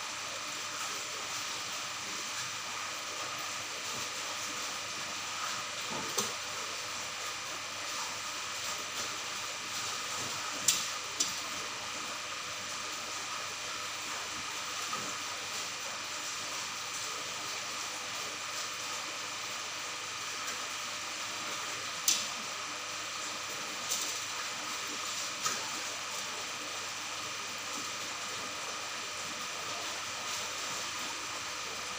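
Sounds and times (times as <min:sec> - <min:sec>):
aquarium equipment hiss and hum: 0:00.0 - 0:31.9.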